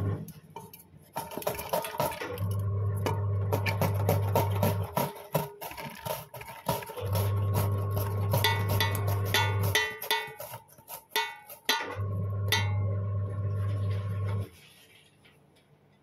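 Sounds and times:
low electric hum: 0:00.0 - 0:01.0, 0:02.3 - 0:04.9, 0:12.0 - 0:16.0.

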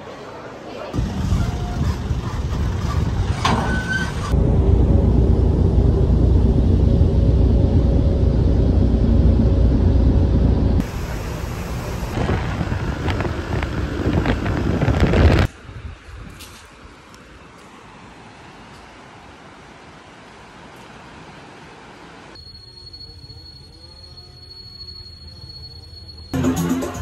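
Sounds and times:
vehicle engine rumble: 0:01.0 - 0:18.0.

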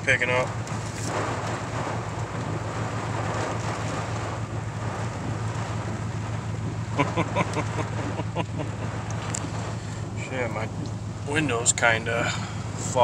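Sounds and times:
engine idling hum: 0:00.0 - 0:13.0
heavy rain and wind on truck: 0:00.0 - 0:13.0
windshield wipers sweeping: 0:00.0 - 0:13.0.

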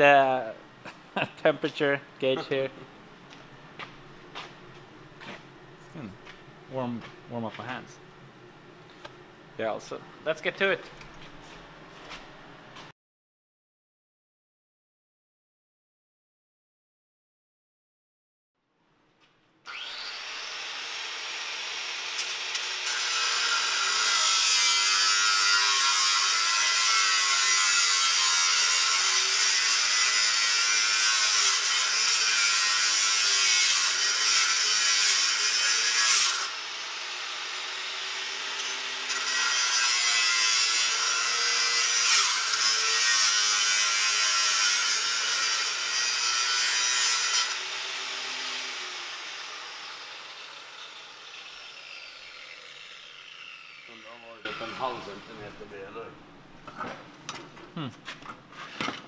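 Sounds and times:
angle grinder cutting steel: 0:19.7 - 0:55.9.

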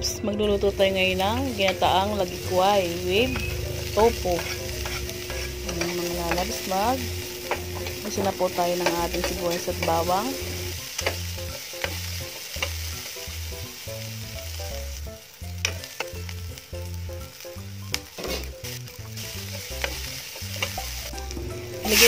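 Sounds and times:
onion sizzling in oil: 0:00.0 - 0:22.0
spatula scraping and tapping pan: 0:04.2 - 0:06.7, 0:07.4 - 0:10.2, 0:10.9 - 0:12.9.

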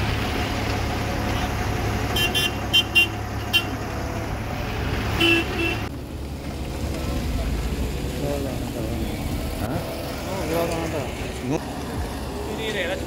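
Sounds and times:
engines rumbling in slow traffic: 0:00.0 - 0:13.0
vehicle horns tooting: 0:02.1 - 0:03.8, 0:05.2 - 0:05.9.

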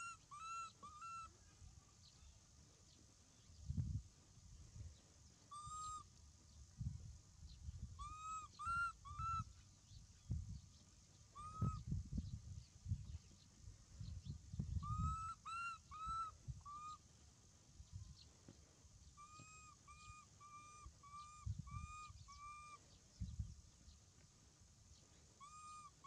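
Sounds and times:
baby macaque coo calls: 0:00.0 - 0:01.3, 0:05.5 - 0:06.1, 0:08.0 - 0:09.5, 0:11.4 - 0:11.8, 0:14.8 - 0:17.0, 0:19.2 - 0:22.8, 0:25.4 - 0:26.0.

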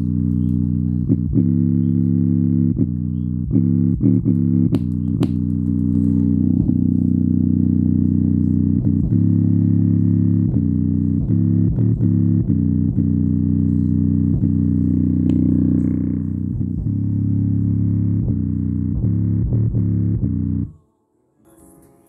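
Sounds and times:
bass-heavy music from speaker: 0:00.0 - 0:20.8
speaker popping: 0:00.0 - 0:20.8.

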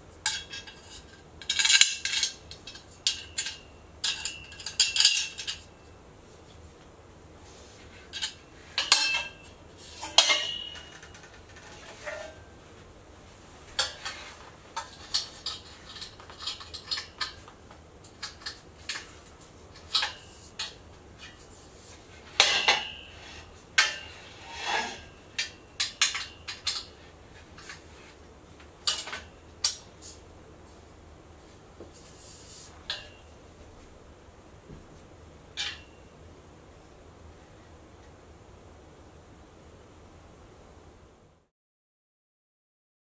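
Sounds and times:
metal tubes knocking and clinking: 0:00.3 - 0:05.7, 0:08.1 - 0:12.4, 0:13.8 - 0:19.2, 0:19.8 - 0:21.4, 0:22.3 - 0:27.0.

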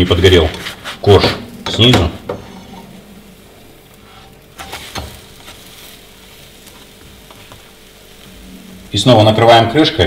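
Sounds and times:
pancake sizzling in pan: 0:02.3 - 0:10.0.

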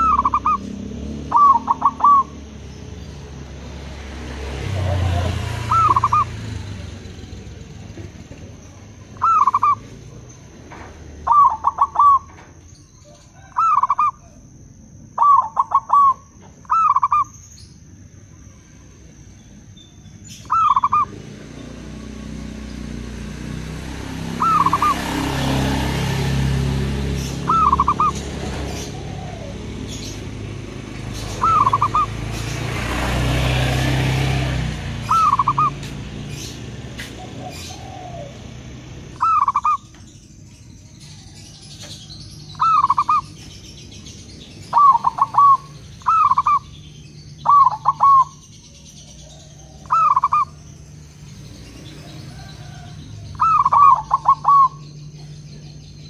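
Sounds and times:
dove cooing: 0:00.0 - 0:02.6, 0:04.6 - 0:06.9, 0:08.9 - 0:10.2, 0:11.2 - 0:12.4, 0:13.1 - 0:14.5, 0:15.2 - 0:17.3, 0:20.4 - 0:23.1, 0:24.2 - 0:32.5, 0:33.2 - 0:35.8, 0:37.2 - 0:39.9, 0:42.5 - 0:43.4, 0:44.6 - 0:46.7, 0:47.4 - 0:48.4, 0:49.2 - 0:50.6, 0:52.0 - 0:55.3.

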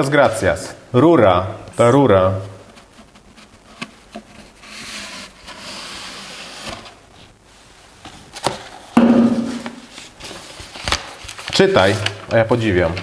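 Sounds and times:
paper rustling: 0:02.6 - 0:07.4, 0:08.0 - 0:13.0.

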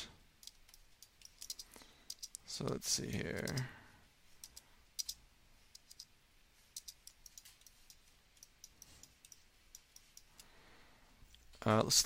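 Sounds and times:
computer mouse and keyboard clicks: 0:00.4 - 0:02.4, 0:03.2 - 0:03.7, 0:04.4 - 0:06.1, 0:06.7 - 0:10.5.

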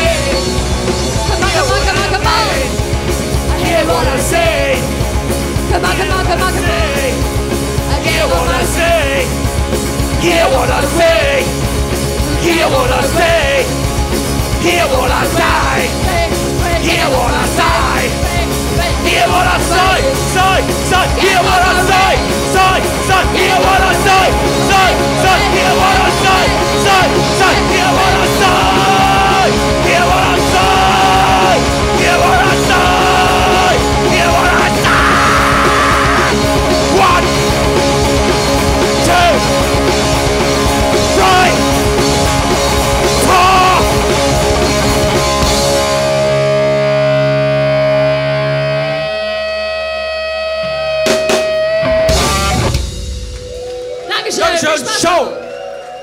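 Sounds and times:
electric guitar: 0:00.0 - 0:54.8
bass guitar: 0:00.0 - 0:54.9
drums: 0:00.0 - 0:56.0
person singing: 0:03.4 - 0:05.0, 0:05.7 - 0:09.4, 0:10.1 - 0:11.6, 0:12.2 - 0:13.8, 0:14.5 - 0:37.5, 0:40.9 - 0:41.8, 0:43.0 - 0:44.1.

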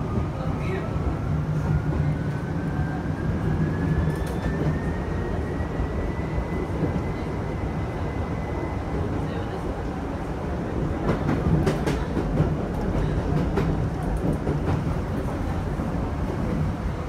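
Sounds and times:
train running gear rumble: 0:09.0 - 0:17.0.

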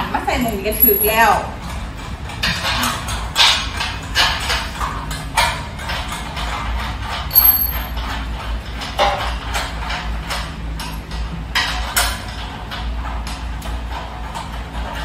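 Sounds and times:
metal clinks and knocks: 0:00.4 - 0:05.2, 0:05.8 - 0:12.2
sharp metallic ping: 0:07.3 - 0:07.9.

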